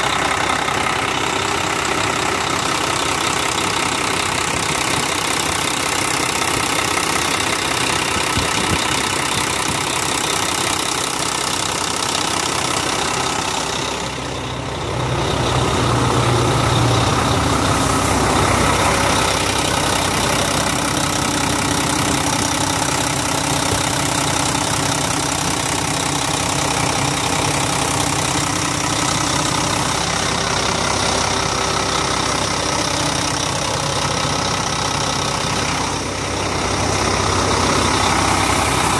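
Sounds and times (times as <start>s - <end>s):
diesel truck engine idling: 0.0s - 38.9s.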